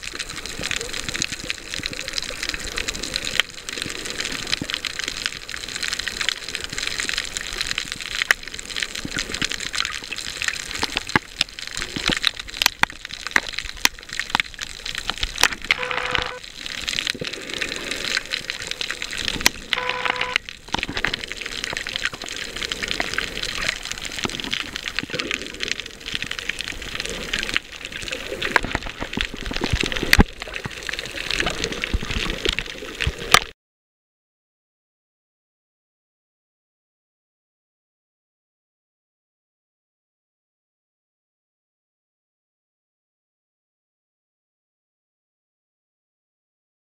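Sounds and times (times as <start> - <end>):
underwater clicks and crackles: 0.0 - 33.6
short low tones: 15.7 - 16.4, 19.7 - 20.5.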